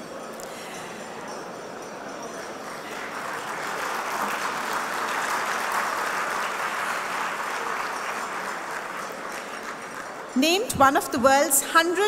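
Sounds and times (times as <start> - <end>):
audience applauding: 2.6 - 10.4.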